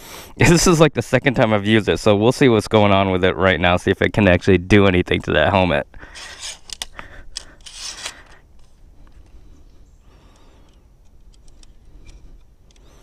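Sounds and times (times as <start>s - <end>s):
crossbow scraping and rubbing: 6.0s - 13.0s
faint handling noise: 6.1s - 13.0s.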